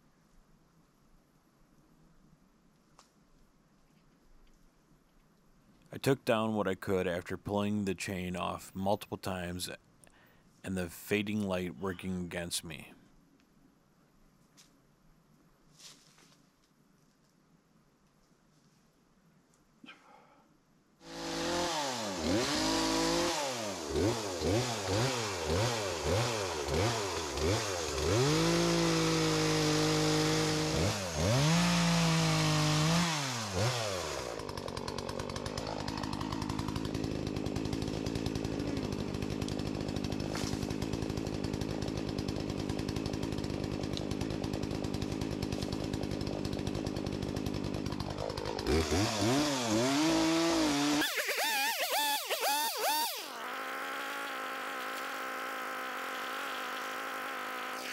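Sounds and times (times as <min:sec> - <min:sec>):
chainsaw idling: 0:21.0 - 0:57.9
chainsaw revving: 0:21.0 - 0:57.9.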